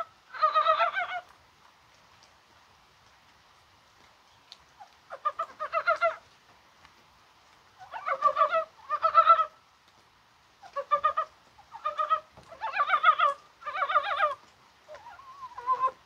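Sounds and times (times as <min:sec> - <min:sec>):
frogs croaking: 0:10.6 - 0:16.0.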